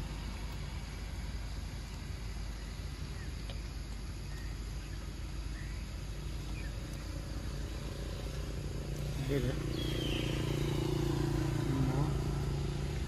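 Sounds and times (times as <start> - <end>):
low outdoor rumble: 0.0 - 13.0
faint bird chirps: 2.2 - 12.7.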